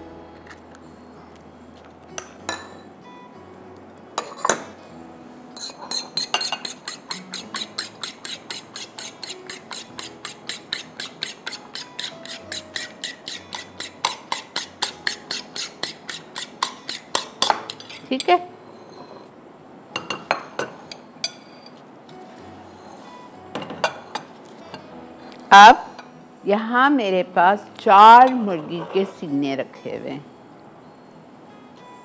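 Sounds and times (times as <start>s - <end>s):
fork clinking against bowl: 5.6s - 18.4s.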